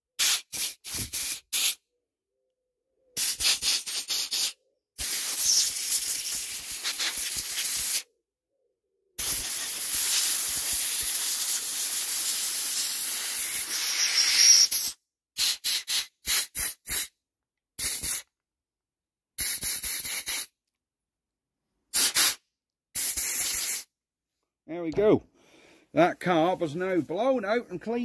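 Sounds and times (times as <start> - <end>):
compressed-air blow gun hissing: 0.2 - 1.8, 3.2 - 8.0, 9.2 - 17.1, 17.8 - 18.3, 19.4 - 20.5, 21.9 - 22.4, 23.0 - 23.9.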